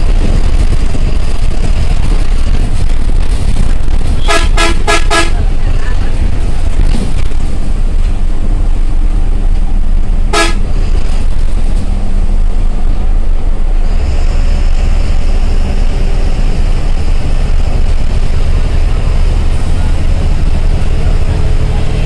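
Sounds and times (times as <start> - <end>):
bus engine running: 0.0 - 22.0
road noise inside cab: 0.0 - 22.0
bus horn toot: 4.2 - 5.5, 10.3 - 10.8.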